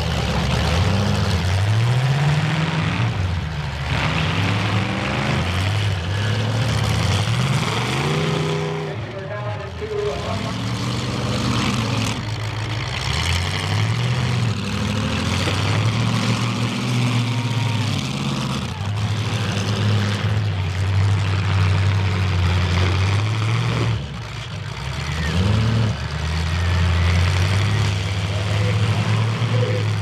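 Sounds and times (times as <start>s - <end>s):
car engines revving: 0.0s - 30.0s.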